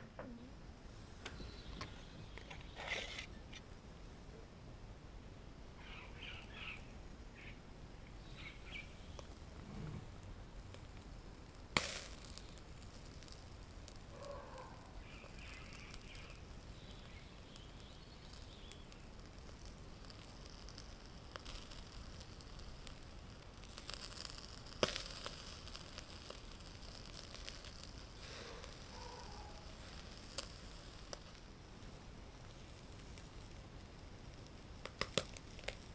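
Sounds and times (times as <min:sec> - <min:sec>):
charcoal fire crackling: 0:00.8 - 0:04.0, 0:04.9 - 0:35.9
fish sizzling: 0:08.2 - 0:35.9.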